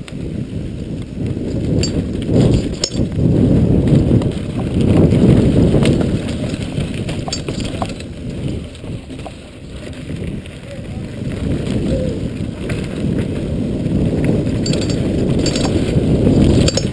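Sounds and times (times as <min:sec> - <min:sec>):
wind rumble on microphone: 0:00.0 - 0:16.9
bike chain and frame rattling: 0:01.2 - 0:16.9
sharp clicks over bumps: 0:14.1 - 0:16.9.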